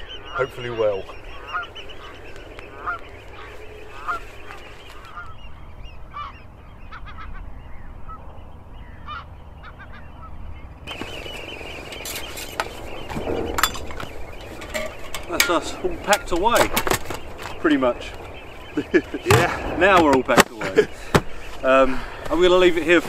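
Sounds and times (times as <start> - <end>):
geese honking: 0.0 - 23.0
camping gear rustling and knocks: 10.9 - 17.7.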